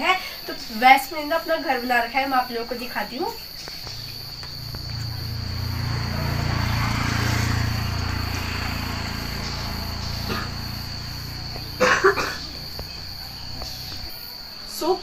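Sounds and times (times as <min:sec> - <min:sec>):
insects chirring: 0:00.0 - 0:15.0.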